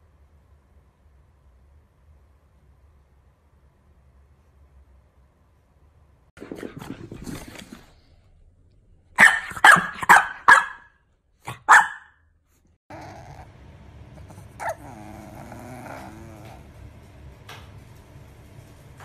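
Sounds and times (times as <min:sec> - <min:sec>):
puppy barking: 0:09.2 - 0:12.2, 0:14.6 - 0:16.2.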